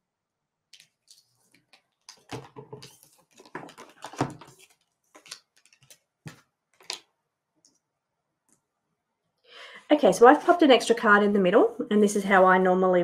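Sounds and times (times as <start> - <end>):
cards sliding and tapping: 0.8 - 7.1.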